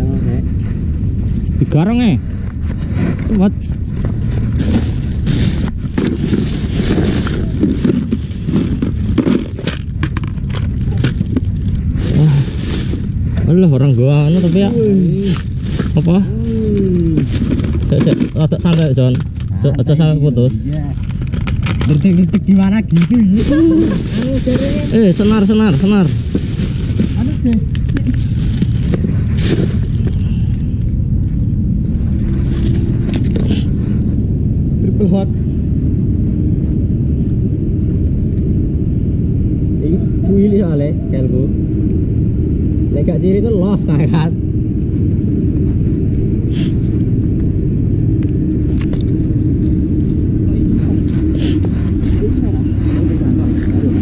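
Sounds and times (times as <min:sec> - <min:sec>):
steady low rumble: 0:00.0 - 0:54.0
plastic bag rustling: 0:04.4 - 0:19.5, 0:23.0 - 0:30.2.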